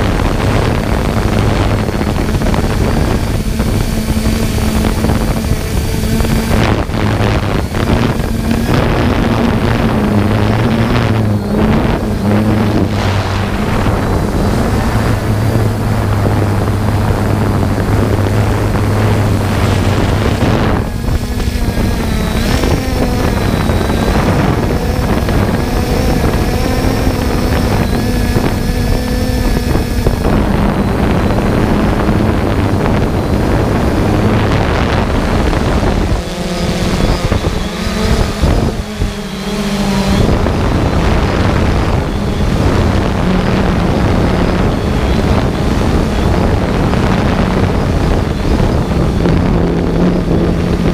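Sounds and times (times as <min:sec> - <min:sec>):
drone motors humming and whining: 0:00.0 - 0:50.9
wind rushing over microphone: 0:00.0 - 0:50.9.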